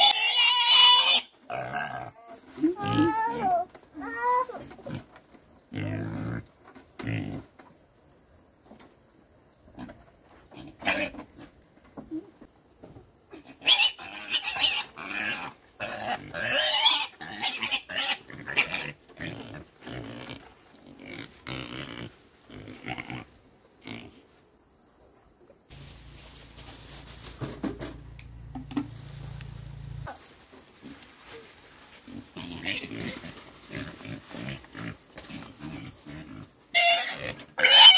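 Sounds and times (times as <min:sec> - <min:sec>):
pig squealing: 0:00.0 - 0:02.2, 0:13.4 - 0:20.4, 0:36.7 - 0:37.9
pig grunting: 0:05.7 - 0:07.5
low rumble: 0:25.7 - 0:30.1.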